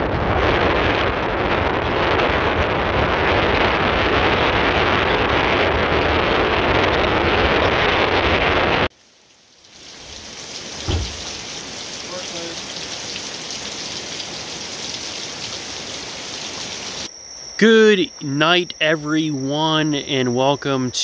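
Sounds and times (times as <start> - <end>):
wind buffeting microphone: 10.8 - 11.5
car road noise: 10.8 - 11.7.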